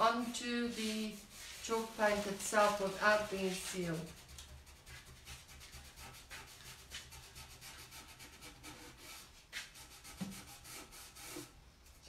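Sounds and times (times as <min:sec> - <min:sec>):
rag scrubbing strokes: 0:00.0 - 0:11.5.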